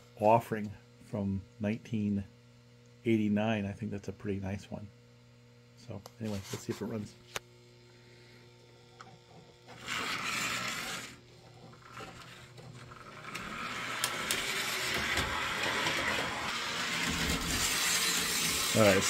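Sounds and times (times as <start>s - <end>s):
steady electrical hum: 0.0s - 19.0s
toy train motor running: 9.0s - 19.0s.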